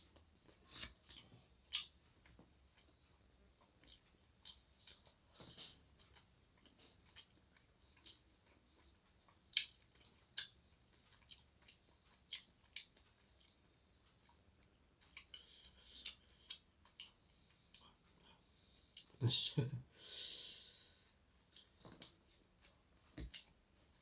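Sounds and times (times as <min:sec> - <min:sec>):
chewing and lip smacks: 0:00.2 - 0:18.3, 0:21.4 - 0:24.0.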